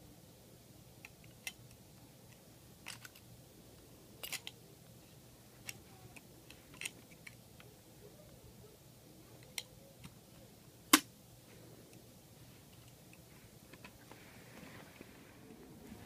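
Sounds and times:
toy truck parts clicking: 2.3s - 3.3s, 4.2s - 4.6s, 5.7s - 7.7s.

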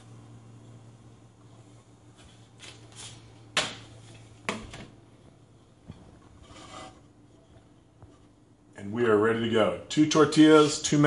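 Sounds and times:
soft rubbing and scraping: 5.8s - 8.4s.

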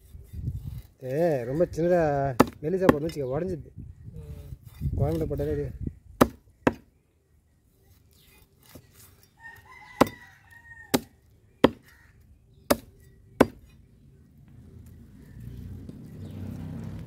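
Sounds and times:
cleaver chopping fish on wood: 2.4s - 3.2s, 6.2s - 6.9s, 10.9s - 11.9s, 12.7s - 13.7s
rooster crowing: 9.4s - 11.2s.

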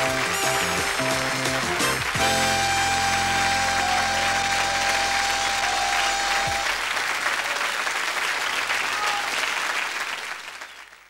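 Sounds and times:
closing music: 0.0s - 6.9s
audience applauding: 0.0s - 11.0s.

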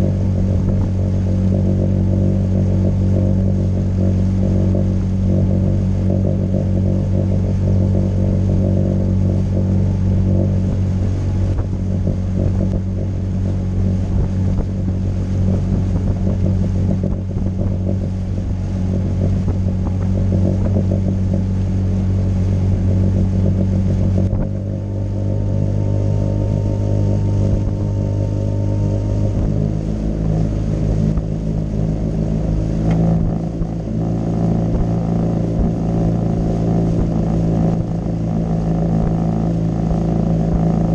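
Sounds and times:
outboard motor running: 0.0s - 40.9s.

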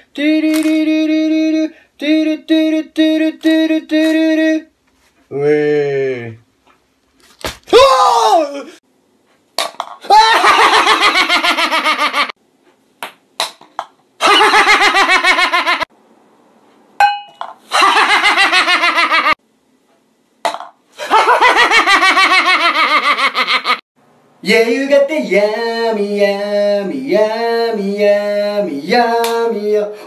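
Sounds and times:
man laughing: 10.1s - 12.4s, 14.2s - 15.9s, 17.7s - 19.4s, 21.0s - 23.8s.

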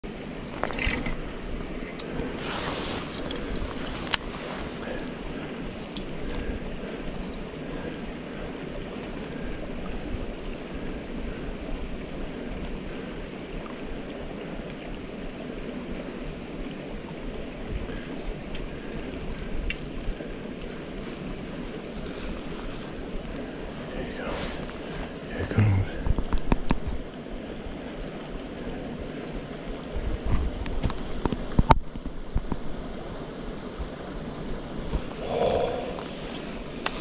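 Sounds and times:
wind buffeting microphone: 16.6s - 33.0s.

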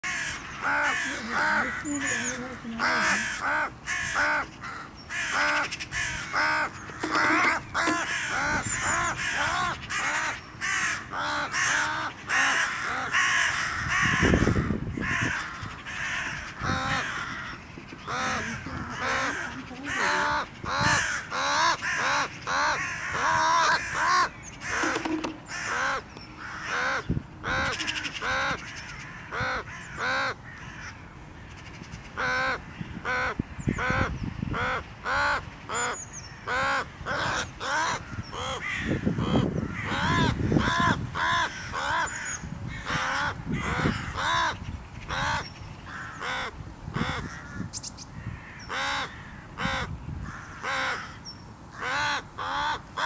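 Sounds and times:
crow cawing: 0.0s - 31.6s, 36.5s - 51.2s, 51.8s - 53.0s.

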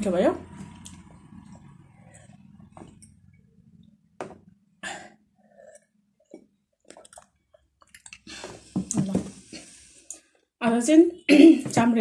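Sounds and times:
person sipping and swallowing water: 4.8s - 10.3s.

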